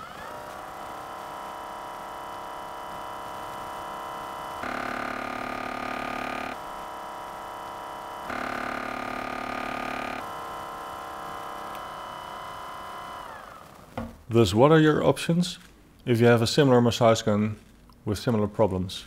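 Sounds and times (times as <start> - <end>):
massage gun loud buzz: 0.0 - 14.0
massage gun humming: 0.0 - 14.3.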